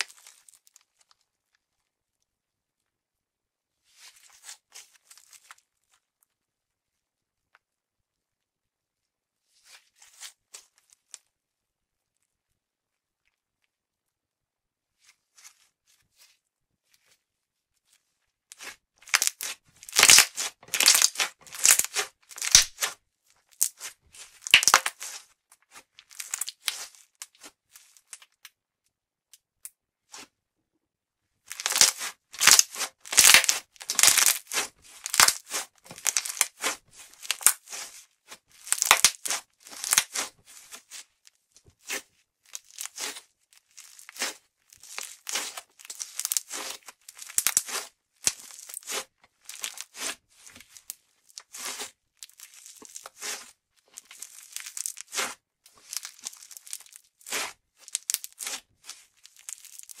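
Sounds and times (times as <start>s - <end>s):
slime crackling and popping: 18.5s - 28.4s, 31.5s - 41.1s, 41.8s - 60.0s.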